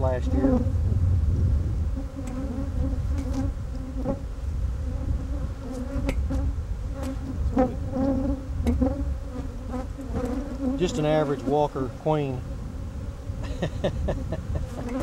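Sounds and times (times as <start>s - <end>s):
honeybees buzzing: 0.0s - 15.0s.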